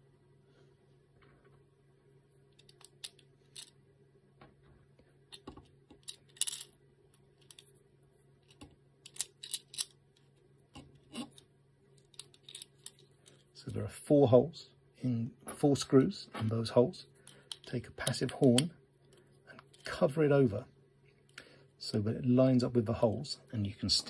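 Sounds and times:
metal screws clicking on plastic: 0:08.5 - 0:09.9.

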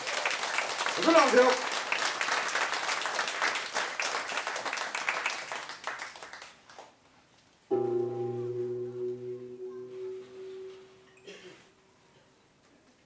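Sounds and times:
audience applause: 0:00.0 - 0:06.9
steady ringing tone: 0:07.7 - 0:11.4.

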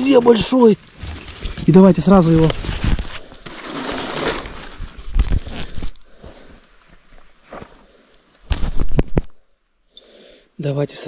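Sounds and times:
forest floor litter rustling: 0:00.0 - 0:08.8.

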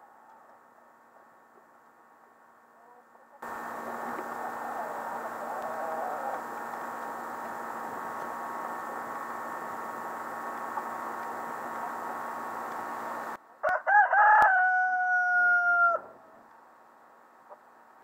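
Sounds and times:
steady background hum: 0:03.4 - 0:13.5
rooster crowing: 0:04.3 - 0:06.6, 0:13.6 - 0:16.2.

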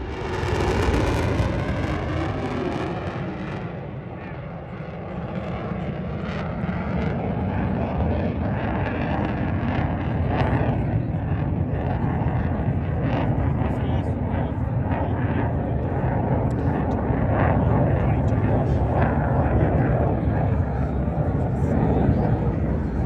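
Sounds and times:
fighter jets rumbling: 0:00.0 - 0:23.0.

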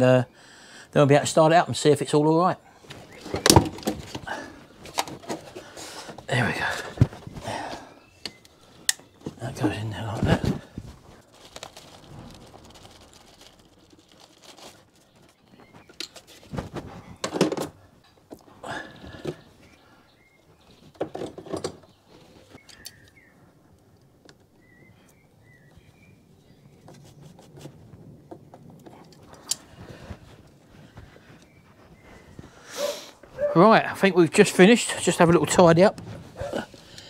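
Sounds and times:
rubber hoses clicking and rubbing: 0:02.9 - 0:19.5
faint bird chirps: 0:21.8 - 0:23.6, 0:24.5 - 0:27.2.

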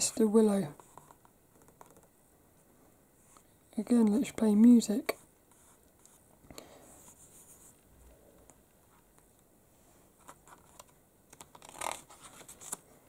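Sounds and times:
fingers rustling on paper pages: 0:00.6 - 0:02.1, 0:10.1 - 0:13.0
page being turned: 0:10.2 - 0:12.9.

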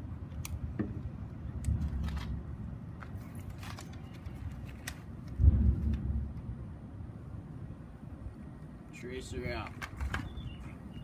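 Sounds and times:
steady low rumble: 0:00.0 - 0:03.6, 0:04.3 - 0:09.5.

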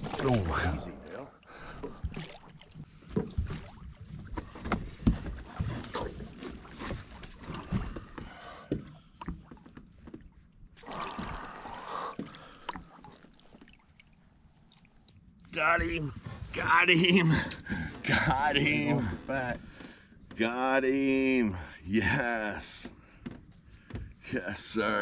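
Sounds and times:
knocks and thumps on boat: 0:01.8 - 0:10.4, 0:22.6 - 0:24.8
fish splashing: 0:10.8 - 0:15.4.

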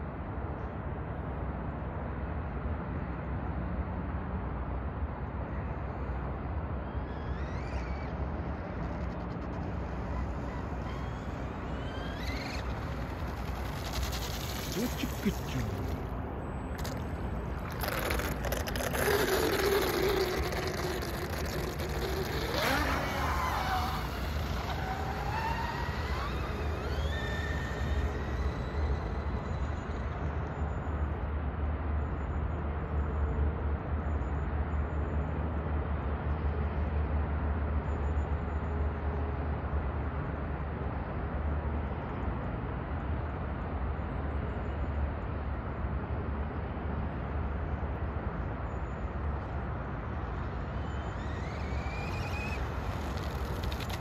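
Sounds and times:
model boat motor whining: 0:06.6 - 0:30.6, 0:50.1 - 0:54.0.

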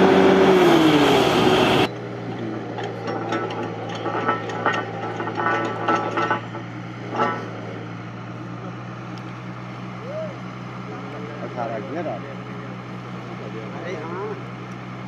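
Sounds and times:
drilling rig engine running: 0:00.0 - 0:15.0
metallic clinks and clanks: 0:02.3 - 0:07.8.

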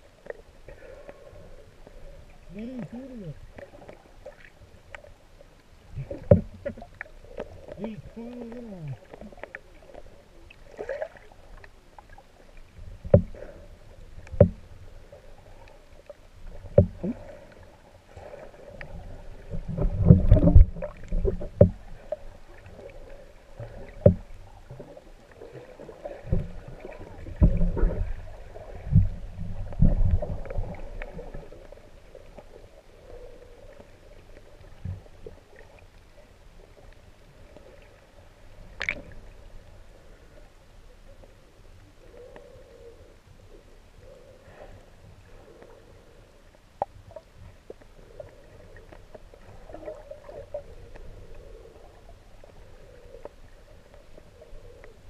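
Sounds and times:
faint steady hum: 0:00.0 - 0:55.0
water swishing underwater: 0:00.0 - 0:55.0
knocks and thumps from movements: 0:06.2 - 0:06.8, 0:13.1 - 0:13.4, 0:24.0 - 0:24.3.

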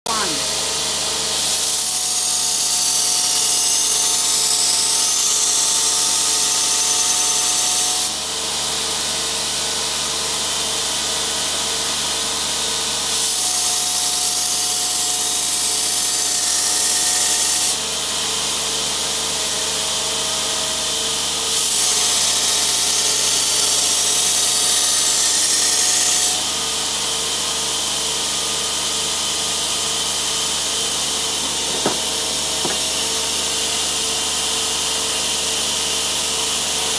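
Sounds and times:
belt grinder motor running: 0:28.2 - 0:34.1.

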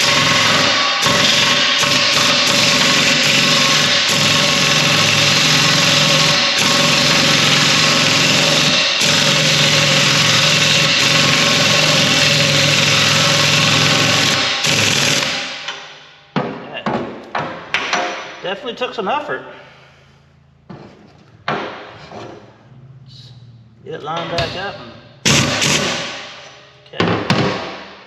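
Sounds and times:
air impact wrench hammering: 0:00.0 - 0:18.4, 0:24.2 - 0:28.0.

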